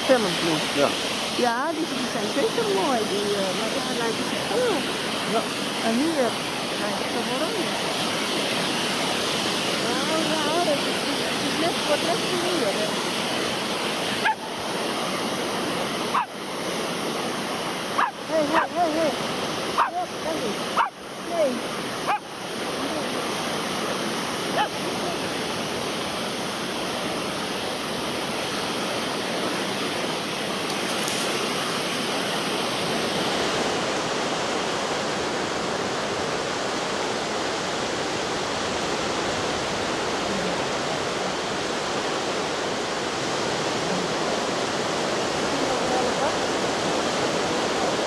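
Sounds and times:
waves breaking on a beach: 0:00.0 - 0:48.0.

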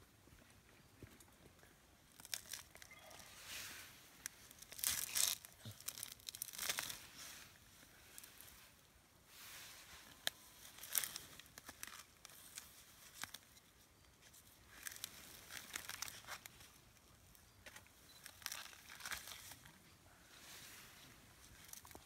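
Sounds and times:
gorilla tearing and crunching bamboo: 0:02.1 - 0:03.3, 0:04.2 - 0:07.4, 0:10.2 - 0:13.6, 0:14.6 - 0:16.8, 0:17.7 - 0:19.7.

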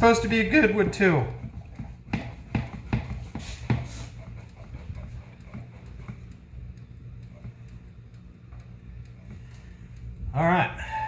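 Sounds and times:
low steady hum: 0:00.0 - 0:11.0
sharp knocks on plywood press: 0:01.8 - 0:03.9.

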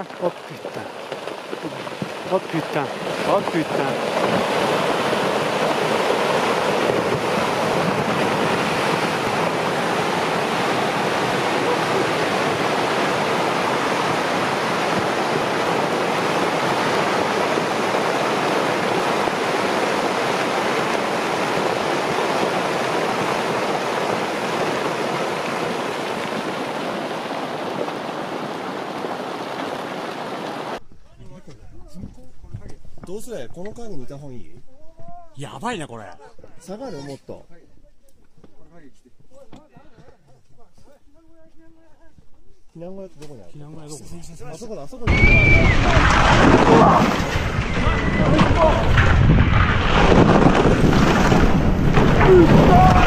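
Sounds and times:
rockfall crashing: 0:00.0 - 0:30.3, 0:45.1 - 0:53.0.

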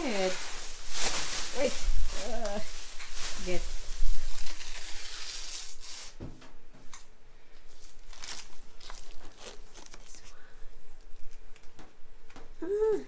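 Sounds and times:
plastic packaging crinkling: 0:00.0 - 0:06.2, 0:07.7 - 0:10.4.

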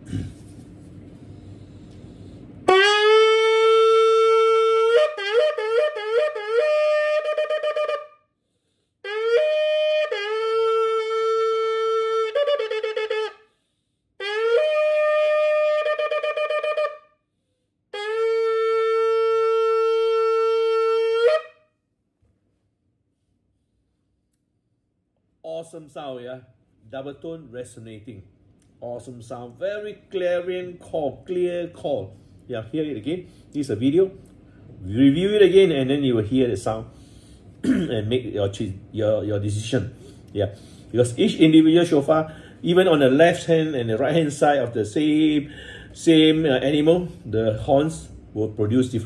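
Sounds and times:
ram's horn blasts: 0:02.6 - 0:08.2, 0:09.0 - 0:13.4, 0:14.2 - 0:17.0, 0:17.9 - 0:21.6.

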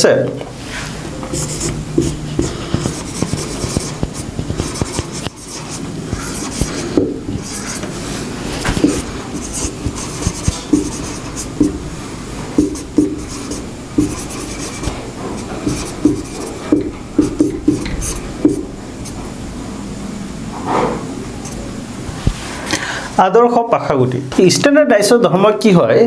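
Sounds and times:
steady background hiss: 0:00.0 - 0:26.0
marker squeaking on whiteboard: 0:01.2 - 0:08.0, 0:08.6 - 0:11.8, 0:12.6 - 0:19.2.

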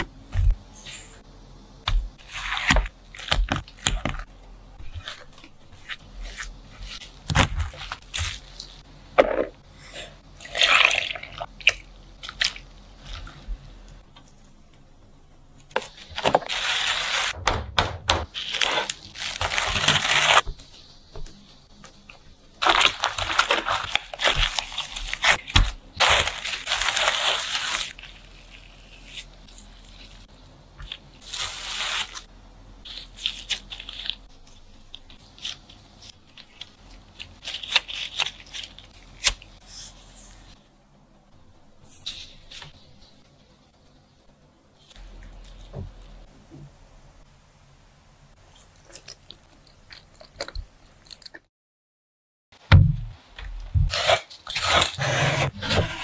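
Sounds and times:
dough squishing and crackling: 0:01.8 - 0:14.9, 0:15.6 - 0:40.6, 0:48.4 - 0:51.5.

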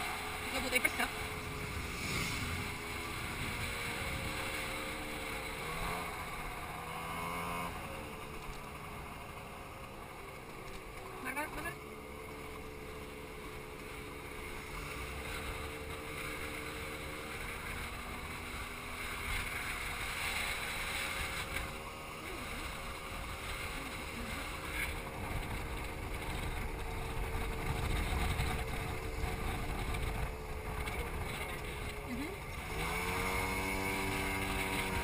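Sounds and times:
wind buffeting microphone: 0:00.0 - 0:07.9, 0:21.7 - 0:35.0
motor scooter engine running: 0:00.0 - 0:35.0.

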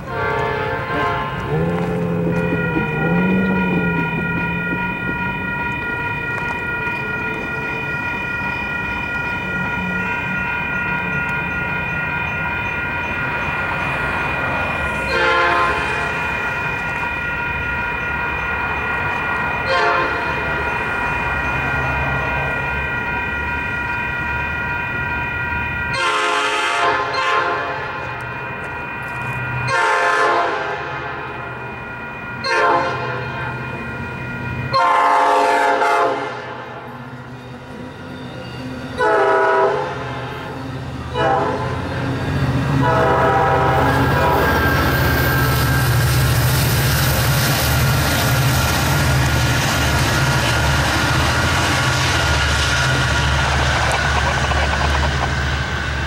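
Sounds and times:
train horn blasts: 0:00.0 - 0:05.8, 0:14.9 - 0:16.4, 0:19.6 - 0:20.4, 0:25.9 - 0:28.0, 0:29.7 - 0:31.2, 0:32.4 - 0:33.4, 0:34.7 - 0:36.9, 0:39.0 - 0:42.0, 0:42.7 - 0:45.1
train rumble: 0:00.0 - 0:56.0.

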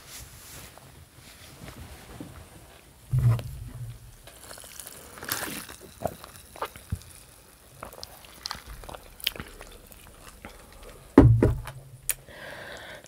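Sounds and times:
chewing: 0:04.2 - 0:11.2
lip and tongue smacks: 0:12.0 - 0:12.2.

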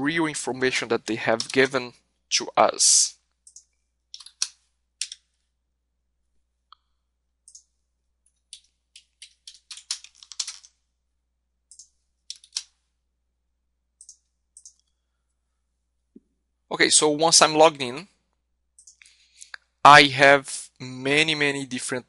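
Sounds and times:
keyboard typing: 0:01.2 - 0:01.8, 0:03.2 - 0:05.4, 0:07.4 - 0:10.8, 0:11.7 - 0:12.8, 0:14.0 - 0:15.0, 0:18.7 - 0:19.5.

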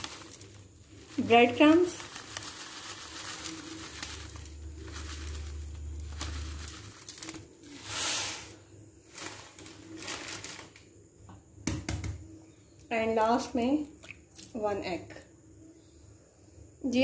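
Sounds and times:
bread crumbs rustling in plastic bowl: 0:00.0 - 0:10.8
brief hiss: 0:07.8 - 0:08.6.

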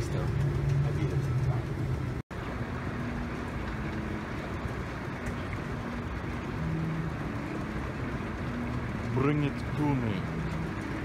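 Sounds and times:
escalator running: 0:00.0 - 0:11.0.

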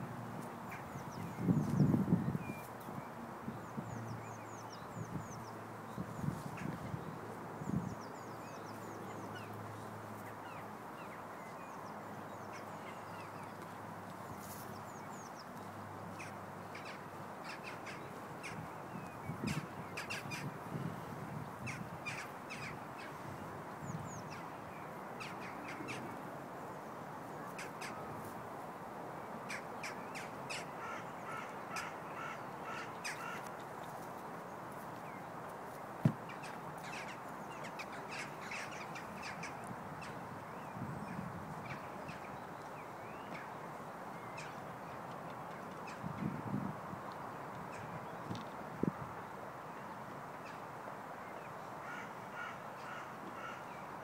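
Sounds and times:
birds calling and chirping: 0:00.7 - 0:23.2, 0:23.8 - 0:26.2, 0:29.5 - 0:35.3, 0:36.0 - 0:43.6.

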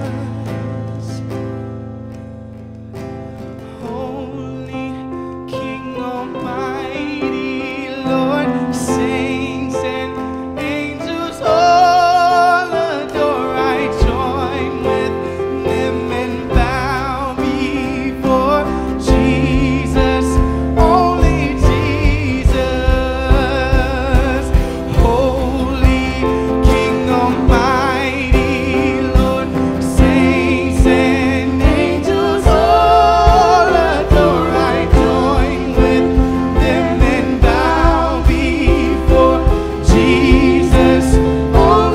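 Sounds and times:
person singing worship song: 0:00.0 - 0:01.6, 0:03.6 - 0:41.9
sustained accompaniment: 0:18.7 - 0:41.9
band with steady drum beat: 0:19.1 - 0:41.9.

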